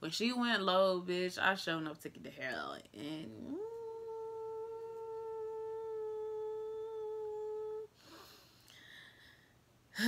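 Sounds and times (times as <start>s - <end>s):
woman humming a long note: 3.0s - 8.2s
faint breath: 7.9s - 9.6s.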